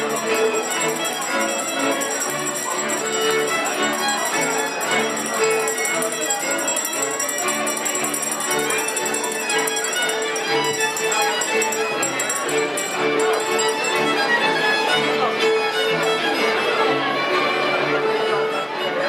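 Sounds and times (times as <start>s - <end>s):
jingling bells: 0.0s - 15.1s
string band playing folk tune: 0.0s - 19.0s.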